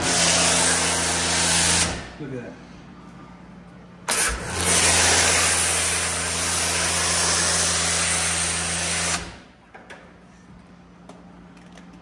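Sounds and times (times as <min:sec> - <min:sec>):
pressure washer motor hum: 0:00.0 - 0:02.2, 0:04.0 - 0:09.6.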